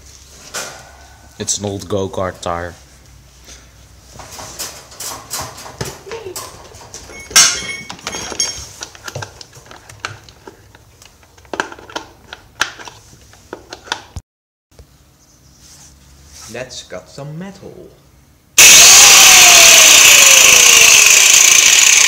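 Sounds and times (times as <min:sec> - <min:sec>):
metal parts and tools clattering: 0:04.2 - 0:09.9
loud sharp ringing hit: 0:18.6 - 0:21.1.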